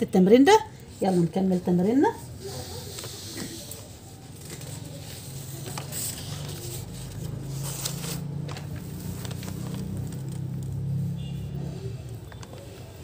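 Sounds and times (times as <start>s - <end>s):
paper rustling: 2.2s - 11.1s, 11.7s - 13.0s.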